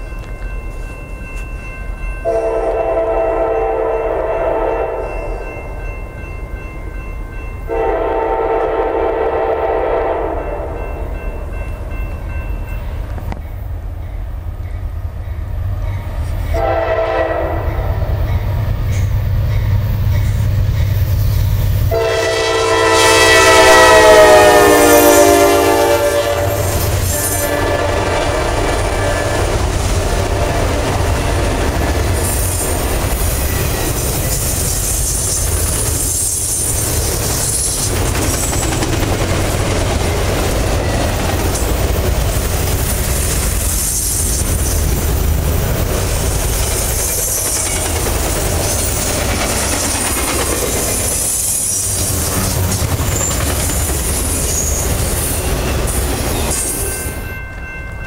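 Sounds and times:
train wheels rumbling on rails: 0.0 - 58.0
locomotive horn: 2.3 - 5.2, 7.7 - 10.7, 16.5 - 18.2, 21.9 - 29.6.

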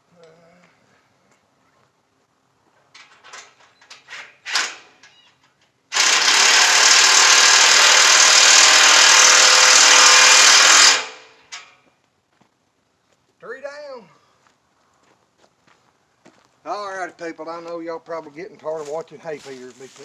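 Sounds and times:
handheld power tool running: 5.9 - 11.6.

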